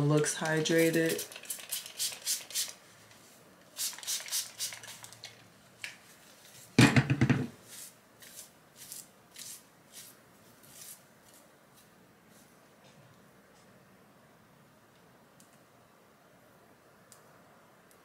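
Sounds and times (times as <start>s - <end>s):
spray bottle squirting: 0.7s - 2.8s, 3.8s - 5.3s.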